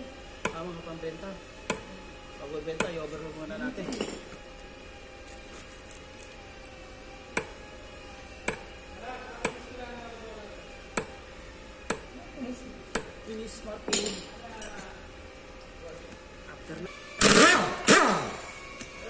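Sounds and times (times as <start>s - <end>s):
hammer tapping on metal: 9.4s - 9.6s, 11.0s - 11.2s, 11.9s - 12.1s.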